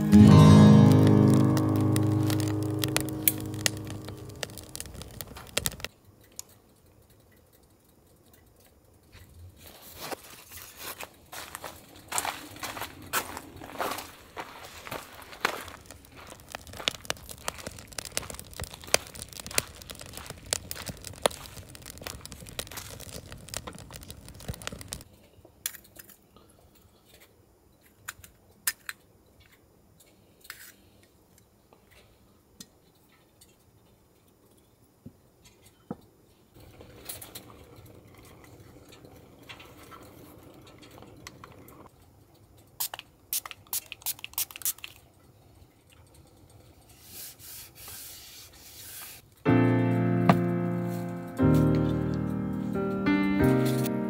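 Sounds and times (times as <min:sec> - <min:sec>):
small objects clicking on table: 0:03.0 - 0:06.6
footsteps on gravel: 0:10.0 - 0:23.8.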